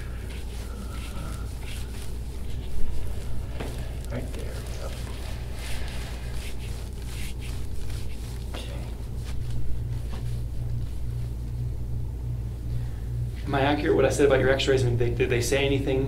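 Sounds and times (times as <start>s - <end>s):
hands rubbing skin during massage: 0.0s - 12.0s
low hum: 0.0s - 16.0s.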